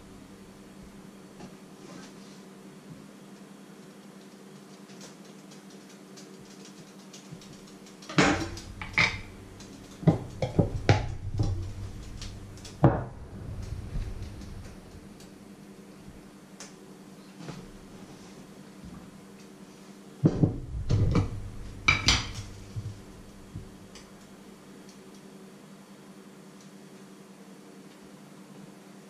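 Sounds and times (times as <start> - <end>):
faint steady hum: 0.0 - 29.0
utensils knocking on cutting board: 8.1 - 9.3, 10.0 - 11.6, 20.3 - 22.5.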